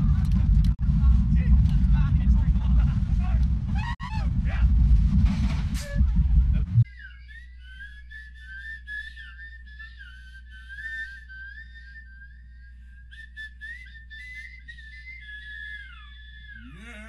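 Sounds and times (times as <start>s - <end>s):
steady low hum: 0.0s - 17.0s
whistled melody: 6.9s - 16.8s.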